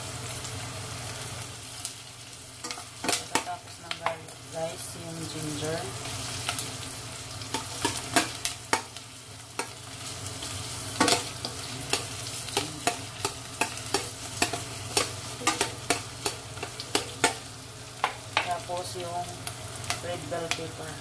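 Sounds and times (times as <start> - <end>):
onions frying in oil: 0.0 - 21.0
metal utensils scraping a pot: 11.0 - 17.4.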